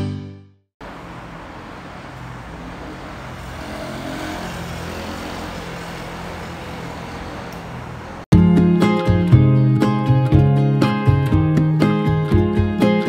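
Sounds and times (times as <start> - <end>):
traffic rumble: 0.8 - 8.3.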